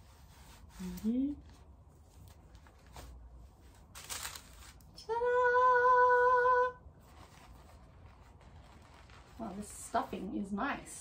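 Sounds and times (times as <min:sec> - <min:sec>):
cloth bag rustling: 0:02.0 - 0:04.8, 0:07.0 - 0:10.2.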